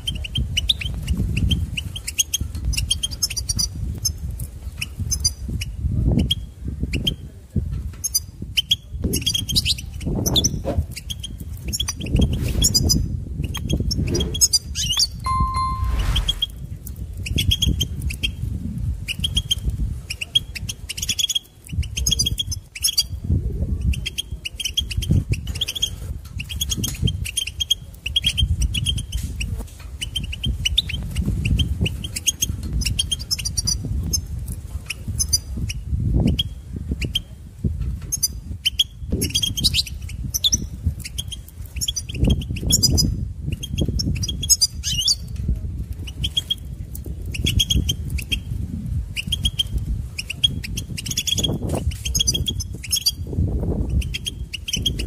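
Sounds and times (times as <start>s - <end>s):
bird song chirps and twitters: 0.0s - 4.2s, 8.0s - 16.5s, 38.1s - 45.3s, 49.2s - 55.0s
low rumble: 15.3s - 16.6s.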